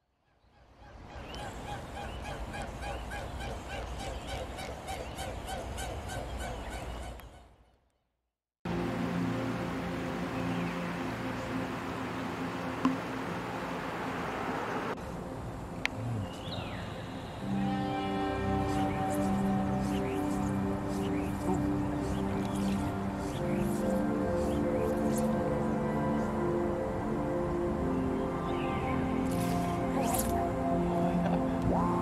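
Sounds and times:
waterfowl calling: 1.2s - 7.5s, 17.9s - 25.4s
river water over rocks: 8.7s - 15.8s, 18.2s - 32.0s
faint background music: 15.0s - 32.0s.

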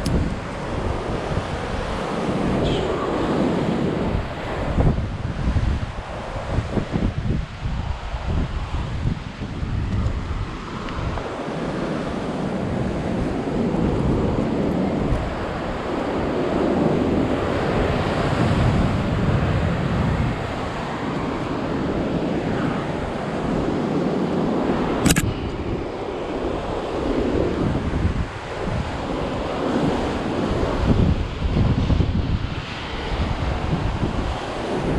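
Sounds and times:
wind buffeting microphone: 0.0s - 34.9s
sharp click: 25.0s - 25.6s.

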